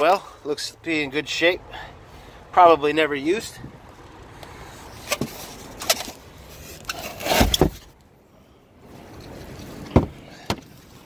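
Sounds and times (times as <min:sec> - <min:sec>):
knocks and clunks in car trunk: 0:09.9 - 0:10.7.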